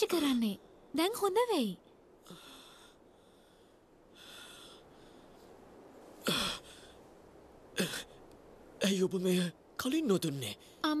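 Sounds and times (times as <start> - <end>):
person breathing: 2.2 - 5.6.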